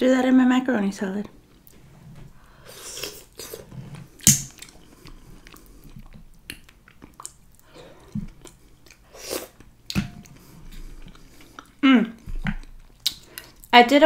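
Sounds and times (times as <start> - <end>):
close chewing: 4.5 - 13.7.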